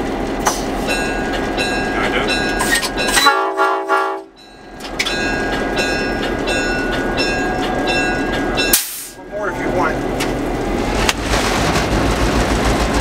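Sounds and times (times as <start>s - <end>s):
locomotive running noise: 0.0s - 13.0s
locomotive air horn chord: 3.1s - 4.4s.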